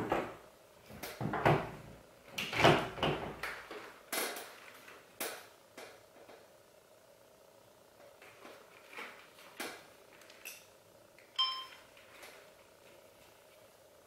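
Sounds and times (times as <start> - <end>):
rustling and scraping: 8.1 - 10.6.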